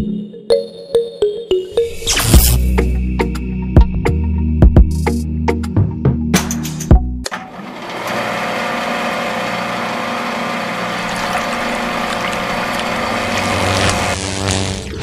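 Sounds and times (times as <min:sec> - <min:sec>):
drum-backed music: 0:02.2 - 0:07.3
hissing humming machine noise: 0:07.3 - 0:15.0.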